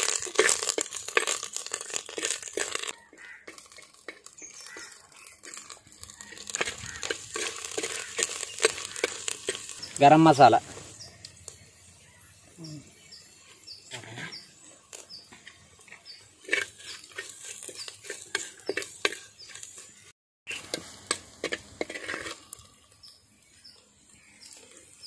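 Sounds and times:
metal spoon scraping clay pot: 0.0s - 10.1s, 15.8s - 22.9s
bird chirping: 4.1s - 20.7s, 22.9s - 25.0s.

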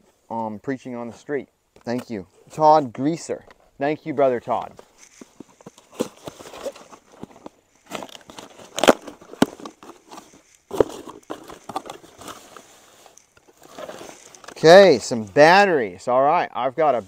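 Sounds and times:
cardboard box being opened: 5.0s - 14.6s.

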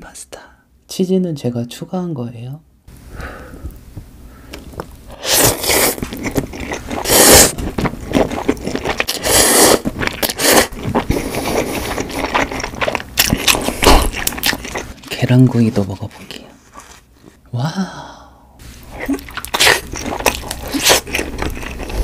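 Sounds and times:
wet chewing sounds: 4.5s - 17.0s, 18.9s - 22.0s
loud noodle slurping: 5.1s - 15.0s.

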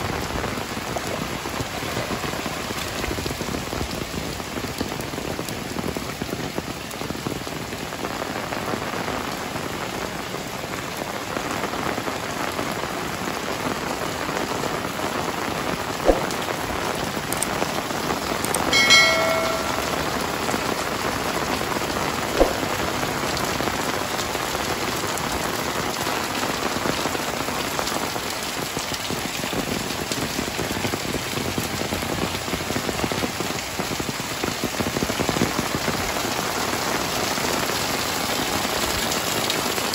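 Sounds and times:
heavy rain falling: 0.0s - 39.9s
short pitched tone: 18.8s - 20.4s, 22.4s - 23.0s.

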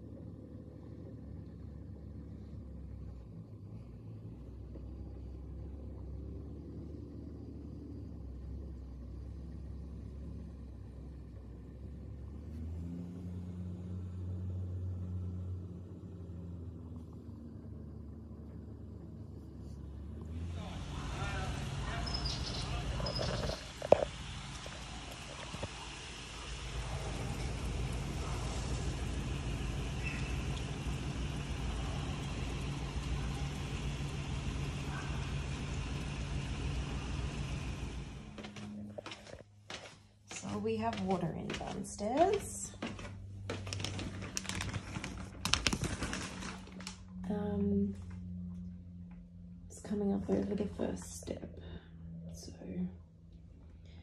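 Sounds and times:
low mechanical hum: 0.0s - 54.0s
truck engine running: 0.0s - 54.0s
rain: 20.3s - 38.4s, 43.7s - 47.1s
floodwater rushing: 20.3s - 38.5s.

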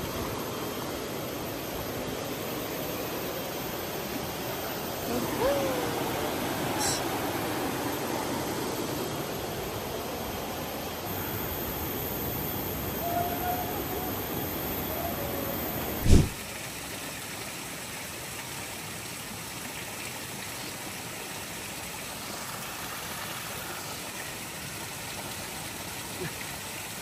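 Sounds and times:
flowing river water: 0.0s - 27.0s
sharp thump: 16.0s - 16.4s.

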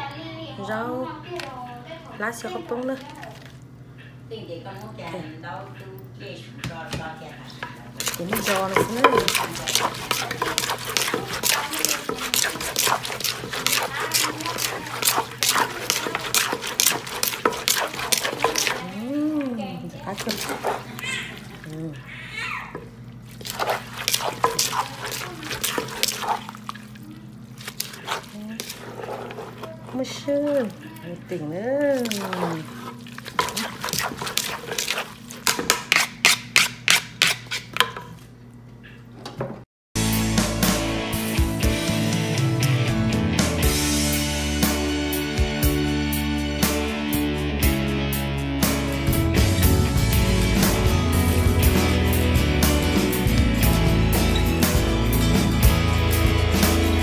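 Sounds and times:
wooden pestle pounding in mortar: 8.0s - 18.9s, 23.5s - 26.4s
spoon scraping in mortar: 8.0s - 19.0s, 20.1s - 21.0s, 23.4s - 26.8s, 27.6s - 30.8s, 31.9s - 37.8s
guitar music: 40.0s - 57.0s.

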